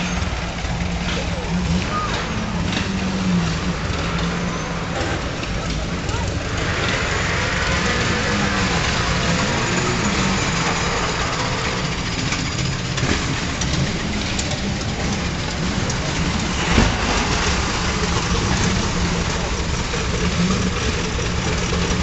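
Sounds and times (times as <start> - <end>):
vintage car engines rumbling: 0.0 - 22.0
sharp crack: 13.0 - 20.3.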